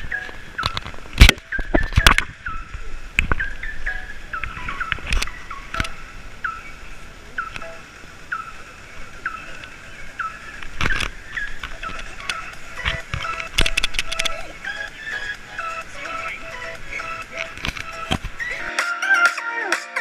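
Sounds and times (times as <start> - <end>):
bicycle squeaking: 0.0 - 6.8, 7.4 - 18.6.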